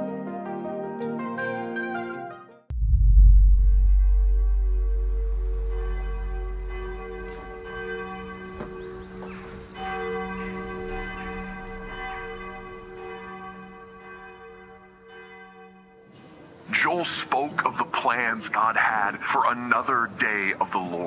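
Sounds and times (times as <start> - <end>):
deep low rumble: 2.7 - 9.2
church bells ringing: 4.6 - 18.6.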